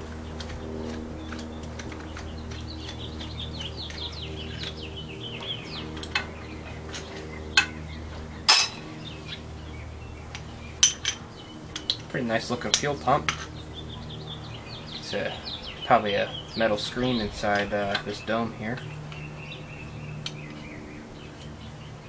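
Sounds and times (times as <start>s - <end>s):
steady low hum: 0.0s - 22.0s.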